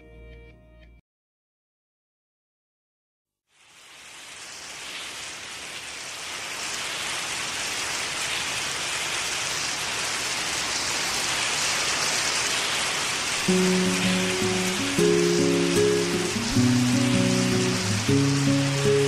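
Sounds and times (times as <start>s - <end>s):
rain-like rushing hiss: 3.5s - 19.0s.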